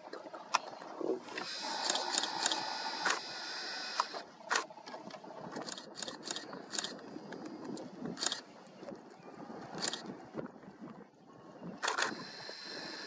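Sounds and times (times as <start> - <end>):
camera zoom motor whirring: 1.4 - 4.6, 11.8 - 13.0.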